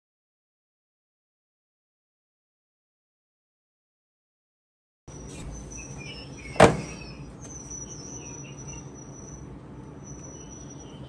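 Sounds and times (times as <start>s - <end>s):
high-pitched chirping and trilling: 5.1s - 11.0s
loud knock: 6.6s - 7.0s.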